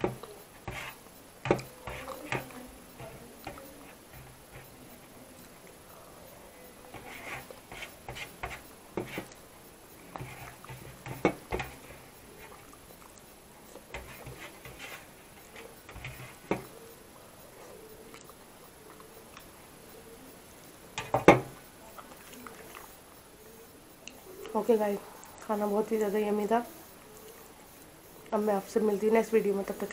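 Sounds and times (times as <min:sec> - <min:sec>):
fingers scraping steel plate: 0:00.0 - 0:05.0, 0:06.9 - 0:09.4, 0:13.9 - 0:16.8
chewing and mouth smacks: 0:12.5 - 0:13.9, 0:17.6 - 0:19.5, 0:21.9 - 0:23.0.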